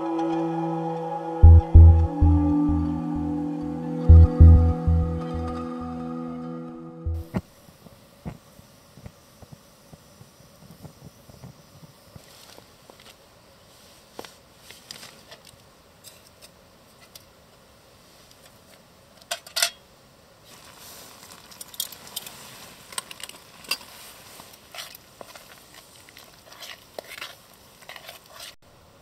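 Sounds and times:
faint steady hiss: 7.2 - 29.0.

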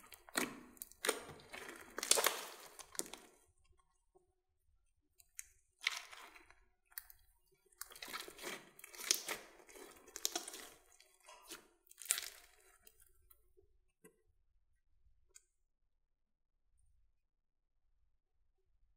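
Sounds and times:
slime squishing and crackling: 0.0 - 3.4, 5.2 - 13.2.

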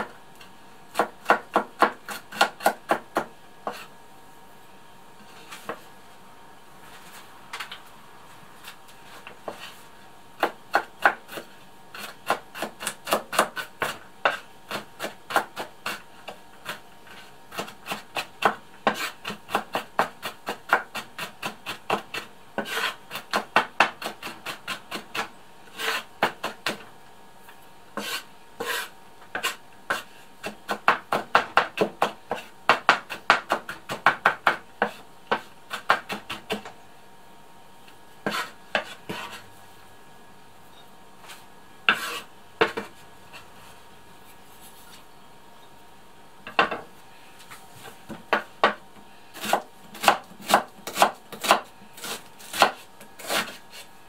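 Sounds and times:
knife chopping on wooden board: 0.9 - 3.9, 10.4 - 26.8, 28.0 - 36.7, 38.2 - 39.4, 41.9 - 42.9, 48.1 - 48.8, 49.4 - 53.8.

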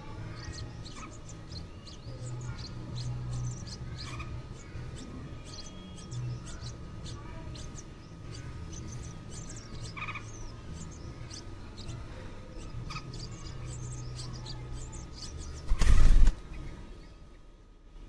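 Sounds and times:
nestlings begging cheeps: 0.0 - 17.5
wings buffeting microphone: 14.1 - 16.9.

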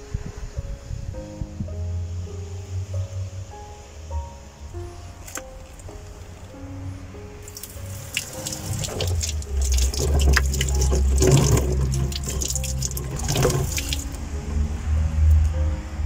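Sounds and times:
tap water splashing on hand: 7.5 - 14.2.

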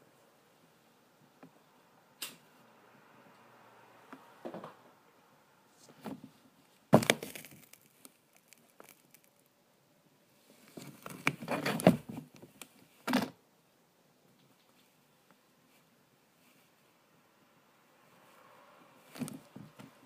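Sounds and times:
plastic toy cracking and crunching: 7.0 - 9.5.

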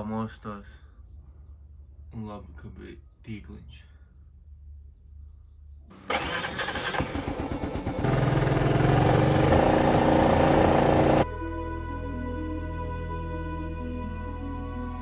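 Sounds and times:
motorbike engine running: 6.0 - 11.2.

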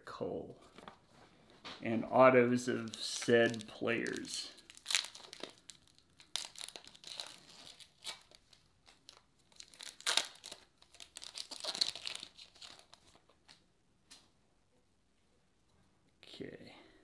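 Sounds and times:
foil wrapper tearing and crinkling: 2.8 - 13.6.

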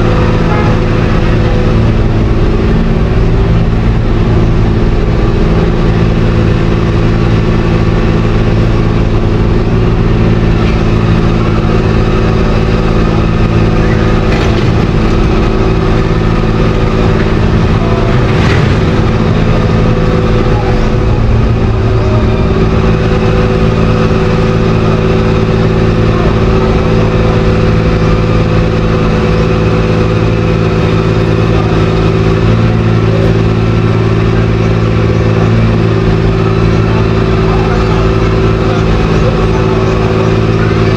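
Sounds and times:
engine running steadily: 0.0 - 40.9.

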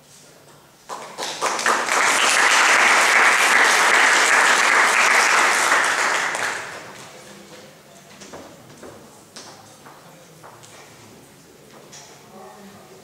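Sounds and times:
audience applauding: 0.9 - 7.0.

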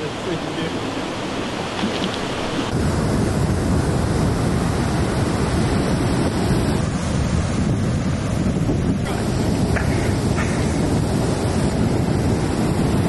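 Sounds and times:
rushing river water: 0.0 - 3.0, 3.7 - 13.0
ocean surf breaking: 0.0 - 13.0
wind buffeting microphone: 0.7 - 13.0.

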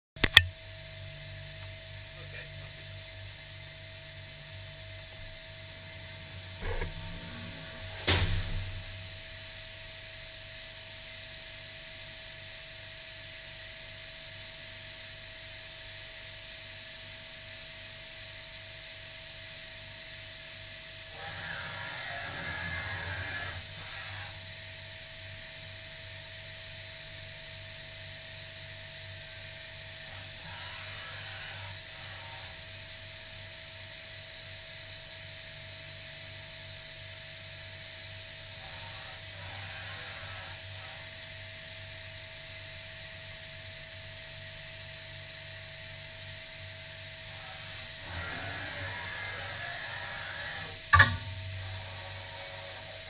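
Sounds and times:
machining centre whining and humming: 0.2 - 10.8, 19.8 - 25.7, 26.7 - 34.9, 35.6 - 42.6, 44.8 - 53.0.

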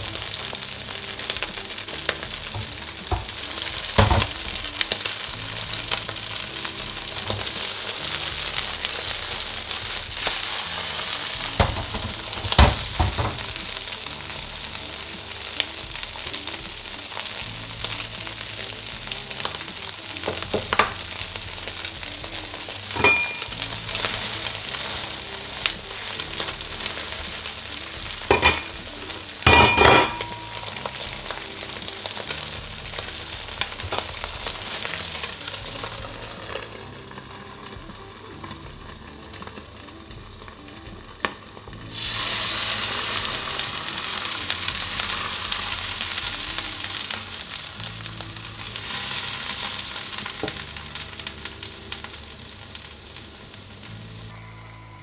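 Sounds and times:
food sizzling in oil in a wok: 0.0 - 55.0
ringing metal clanks: 23.0 - 23.5.

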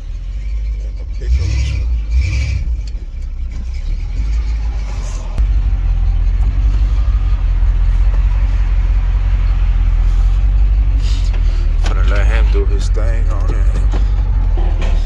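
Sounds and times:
pickup engine rumble: 0.0 - 15.0.

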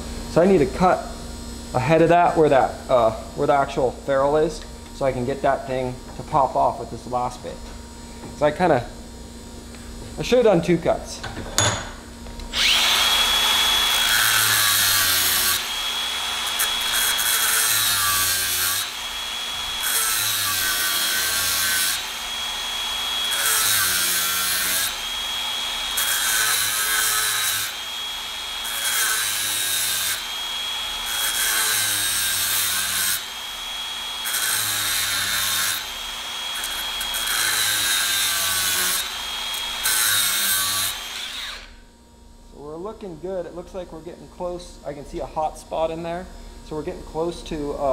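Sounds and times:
angle grinder cutting steel: 12.5 - 41.8.

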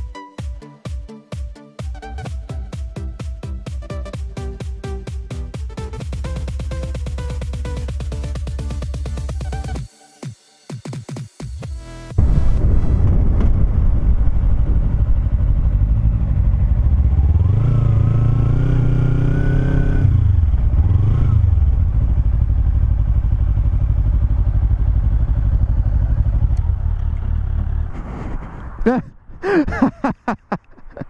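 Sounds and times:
wind rushing: 12.2 - 17.1
motorcycle engine revving: 14.2 - 27.9.

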